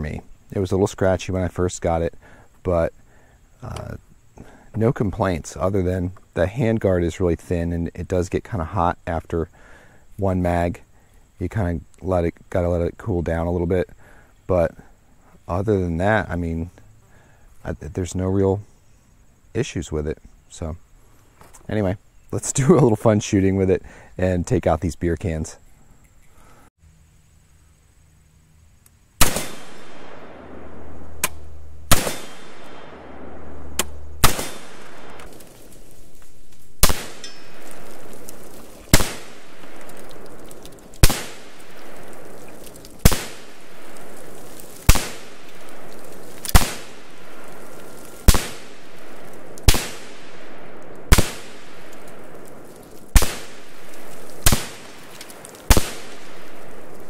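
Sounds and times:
rifle single shots: 29.2s - 36.0s, 36.7s - 57.0s.

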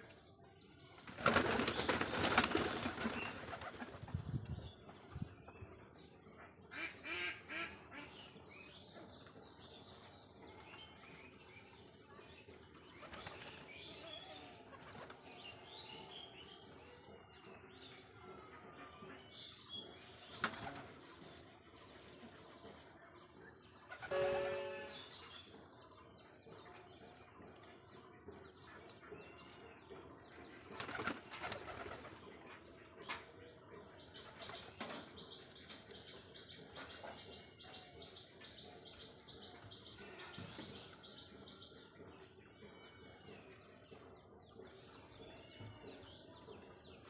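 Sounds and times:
pigeon wings flapping: 1.1s - 3.9s.

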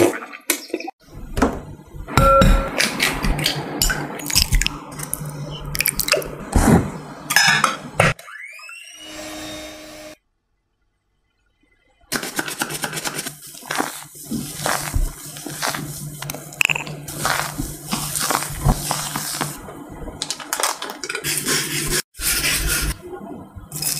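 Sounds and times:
spatula scraping glass bowl: 12.7s - 19.6s.

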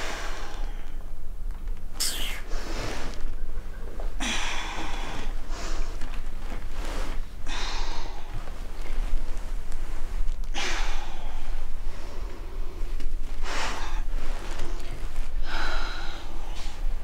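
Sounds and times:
steady low hum: 0.0s - 17.0s
woman breathing heavily: 2.0s - 2.8s, 4.2s - 6.1s, 7.4s - 9.0s, 10.5s - 17.0s.

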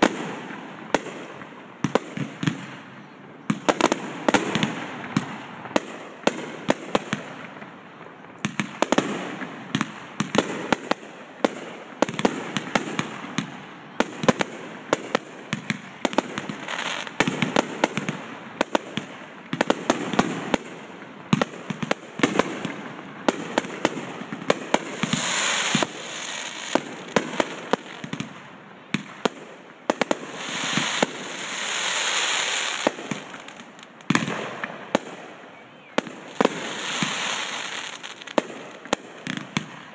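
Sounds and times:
fireworks bursting: 0.0s - 39.9s
fireworks hissing: 24.7s - 28.0s, 30.3s - 34.2s, 36.2s - 38.4s.

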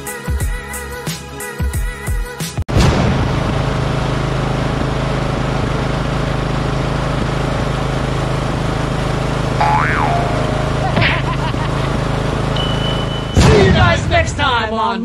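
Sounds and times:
lawn tractor engine running: 3.3s - 13.5s
outro music: 9.6s - 13.3s.

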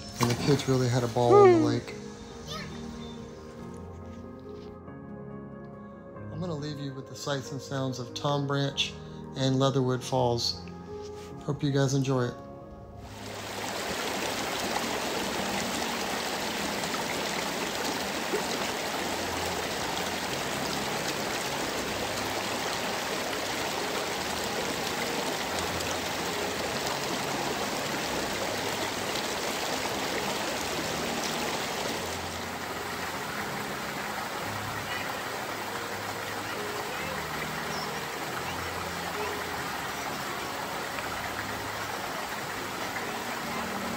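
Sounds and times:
waterfall rushing over rock: 0.0s - 2.0s, 13.1s - 43.9s.

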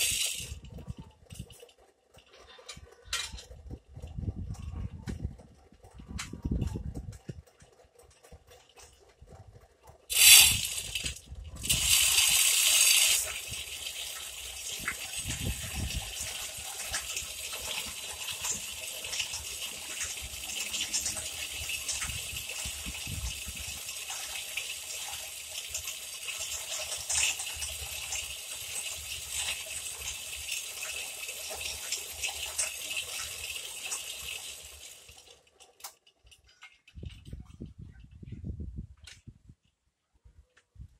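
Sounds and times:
water gushing from pipe: 0.0s - 0.6s, 10.1s - 35.3s.

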